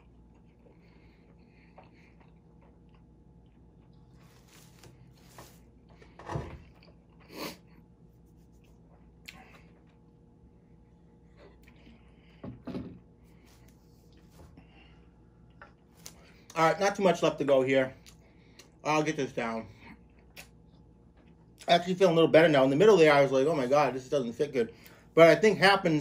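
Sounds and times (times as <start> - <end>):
man chewing with full mouth: 0.0 - 12.4.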